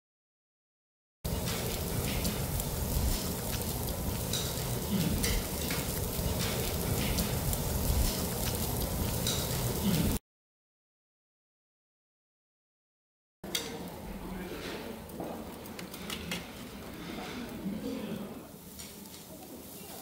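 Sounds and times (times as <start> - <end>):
meat sizzling on a grill: 1.3 - 10.2, 18.5 - 20.0.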